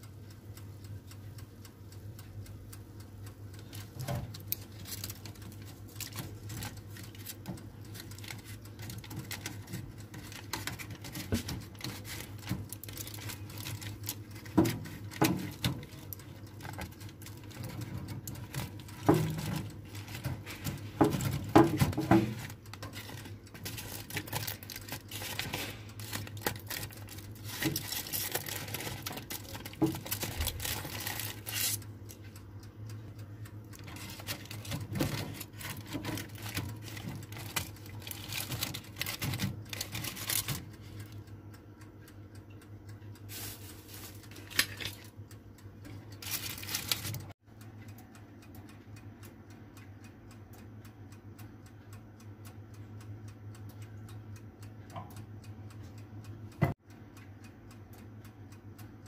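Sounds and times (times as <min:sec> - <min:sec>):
steady low hum: 0:00.0 - 0:59.0
utensils and cookware clattering: 0:17.6 - 0:31.7.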